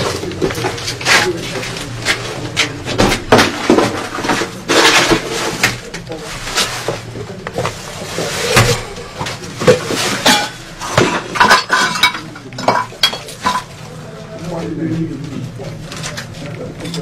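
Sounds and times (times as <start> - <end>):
objects knocking and banging: 0.0 - 13.9
glass and metal clattering and breaking: 3.0 - 5.9, 8.4 - 13.8.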